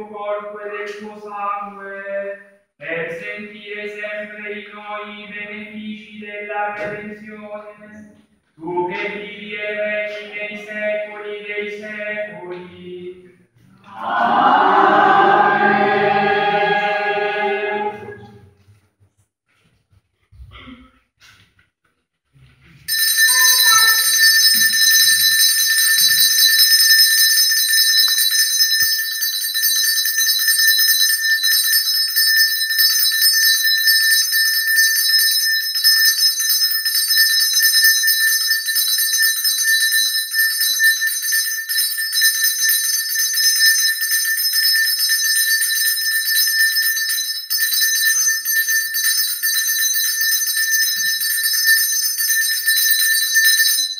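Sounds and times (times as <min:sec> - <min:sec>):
small bells jingling: 0:22.9 - 0:53.9.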